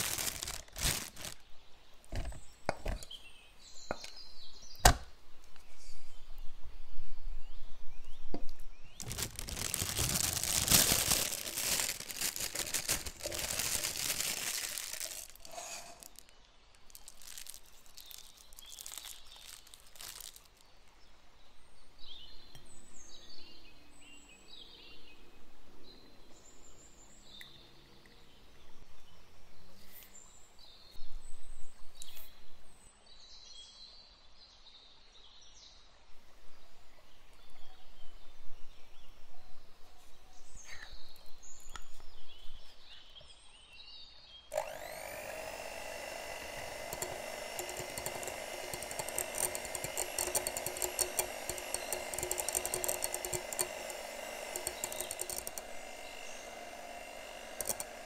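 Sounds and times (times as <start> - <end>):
plastic bag and cup crinkling: 0.0 - 1.4, 8.9 - 20.8, 44.5 - 58.0.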